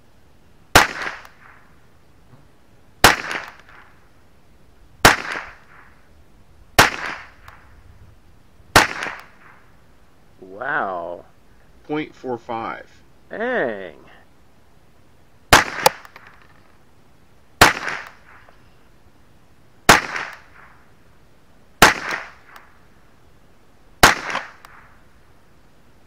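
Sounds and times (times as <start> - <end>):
rifle shots: 0.7 - 1.7, 3.0 - 3.9, 5.0 - 5.9, 6.8 - 7.6, 8.7 - 9.7, 15.5 - 16.5, 17.6 - 18.5, 19.9 - 20.8, 21.8 - 22.6, 24.0 - 24.9.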